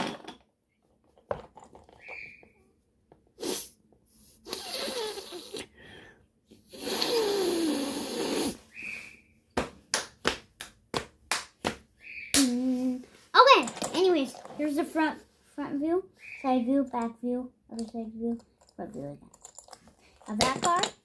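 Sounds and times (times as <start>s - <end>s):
child hissing exhales with groan: 3.4s - 3.8s, 4.4s - 6.0s, 6.6s - 8.7s.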